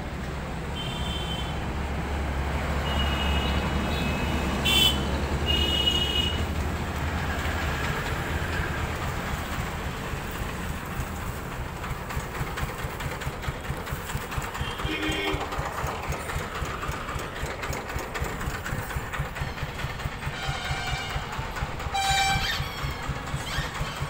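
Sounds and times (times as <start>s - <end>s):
tractor diesel engine running: 0.0s - 24.0s
short high squeaks: 22.0s - 24.0s.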